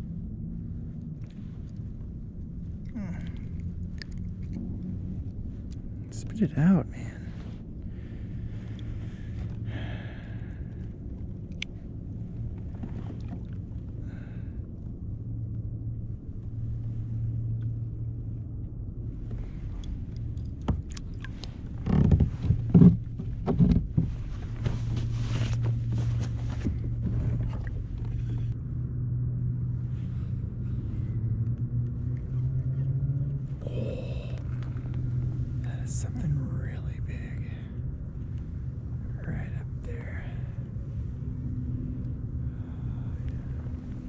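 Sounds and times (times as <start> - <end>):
steady low hum: 0.0 - 44.0
knocks and thumps against hull: 20.6 - 28.5.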